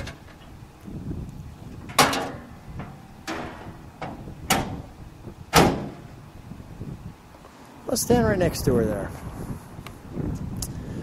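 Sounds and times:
car hood clunking shut: 1.8s - 6.1s.

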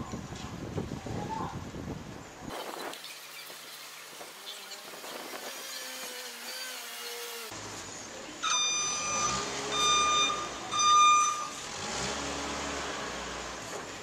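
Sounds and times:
forklift engine humming: 6.4s - 14.0s
forklift warning alarm beeps: 8.4s - 11.9s.

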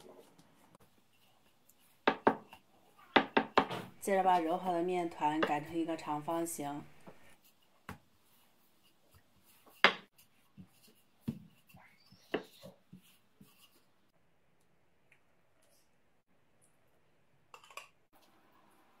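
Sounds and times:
rolling pin knocking on board: 3.2s - 3.8s.

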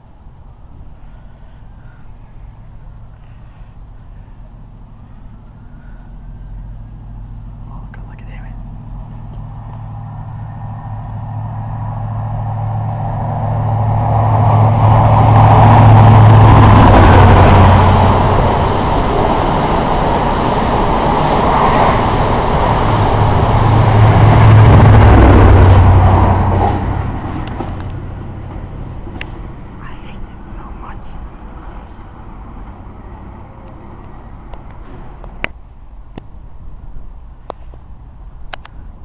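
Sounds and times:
train passing with rail noise: 0.0s - 39.0s
high squeals of train wheels: 15.2s - 24.6s.

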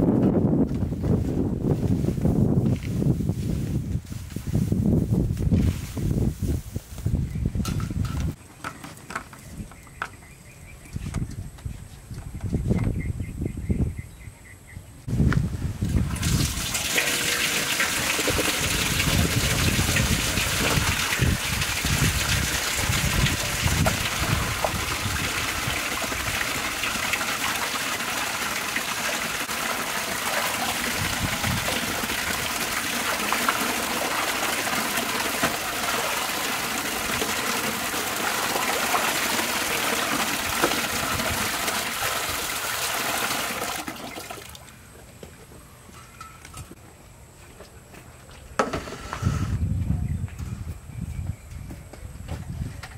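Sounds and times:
splashing while washing meat: 16.0s - 44.6s
water gushing from a tap: 16.0s - 44.6s.

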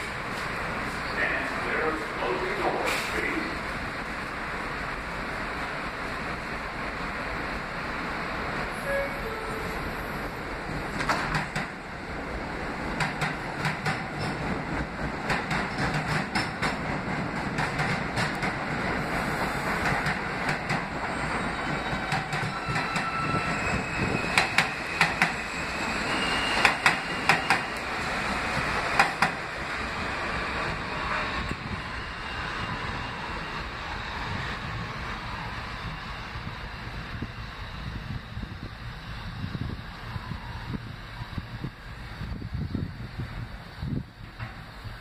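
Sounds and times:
subway train on rails: 0.0s - 45.0s
wheels clicking over rail joints: 13.0s - 18.8s
high wheel squeal: 21.1s - 28.0s.

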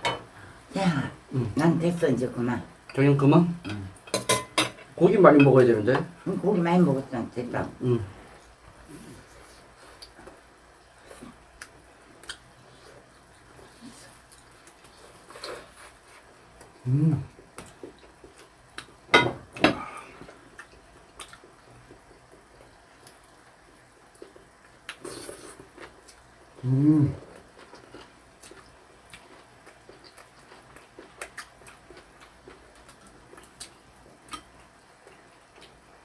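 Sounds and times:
chewing and gnawing meat: 27.2s - 35.8s.

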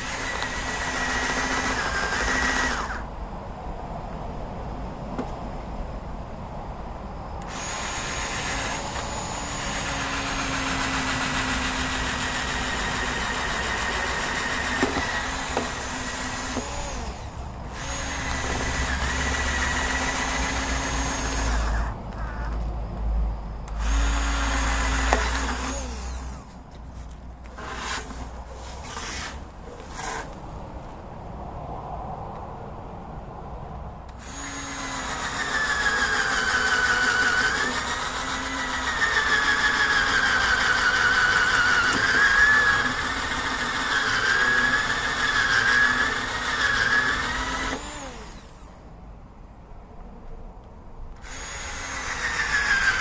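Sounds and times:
electric drill boring rubber: 0.0s - 3.1s, 7.4s - 22.5s, 23.8s - 26.5s, 27.5s - 28.2s, 34.2s - 48.8s, 51.2s - 53.0s.

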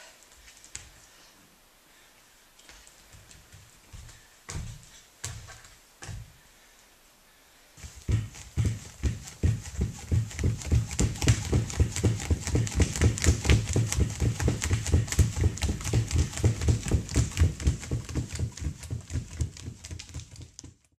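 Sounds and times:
fast thumps with sharp clicks: 7.8s - 20.9s.

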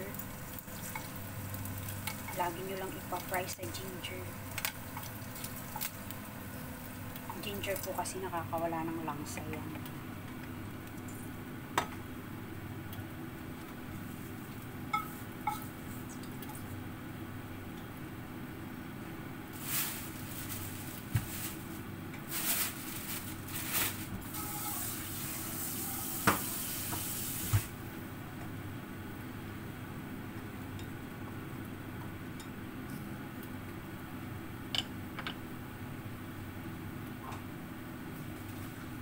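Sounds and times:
food sizzling in a pan: 0.0s - 8.5s, 23.4s - 27.8s
steady hum: 0.0s - 39.0s
utensils clinking on cookware: 14.9s - 15.7s.

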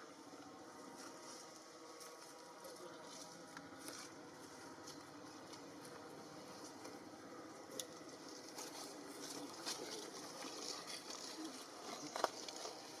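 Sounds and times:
small clicks and rustles: 7.7s - 13.0s.

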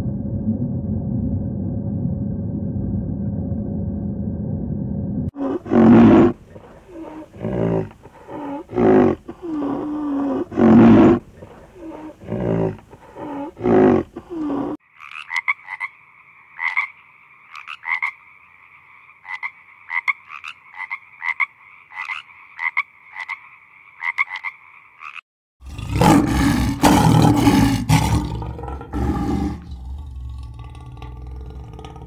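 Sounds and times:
rhinoceros calling: 5.4s - 14.8s
frog croaking: 5.4s - 32.0s.

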